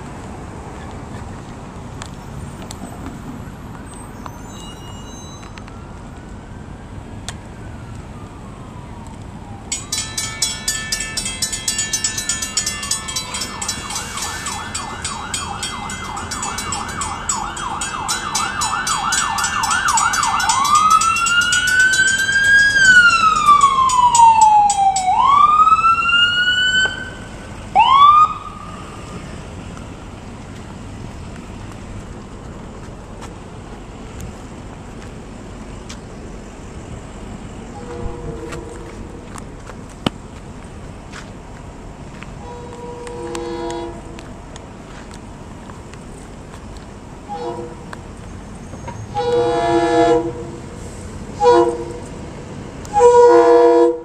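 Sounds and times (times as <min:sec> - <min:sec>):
electronic siren: 0:13.3 - 0:29.0
short siren chirp: 0:13.5 - 0:20.6.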